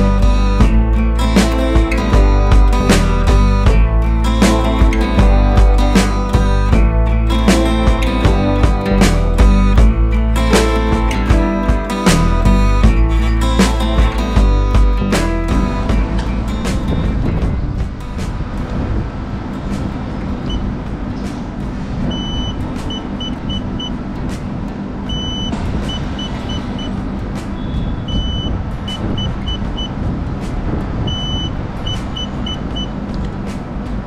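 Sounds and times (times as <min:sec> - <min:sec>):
scooter dashboard beeping: 0:22.1 - 0:24.0, 0:25.1 - 0:27.0, 0:27.6 - 0:30.0, 0:31.1 - 0:32.9.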